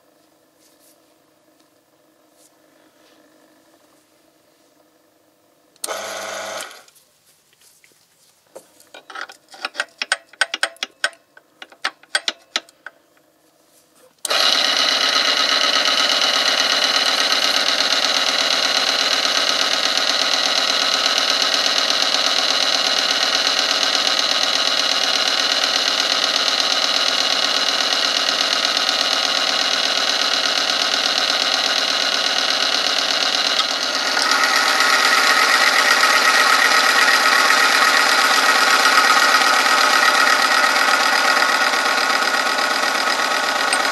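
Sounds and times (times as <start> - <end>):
metal lever clicks: 8.9 - 13.0.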